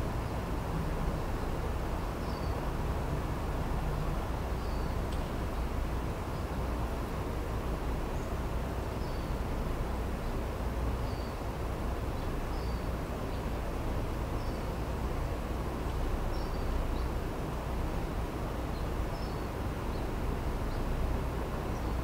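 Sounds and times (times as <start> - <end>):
low background rumble: 0.0 - 22.0
small bird chirping: 2.2 - 2.6, 4.6 - 5.0, 8.9 - 9.4, 11.0 - 11.4, 12.1 - 13.4, 14.4 - 14.8, 16.3 - 17.2, 18.7 - 20.9.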